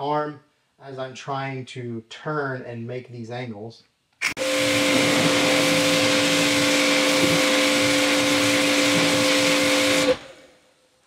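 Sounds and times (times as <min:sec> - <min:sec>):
pressure washer spray hissing: 0:04.3 - 0:10.2
pump motor hum: 0:04.4 - 0:10.5.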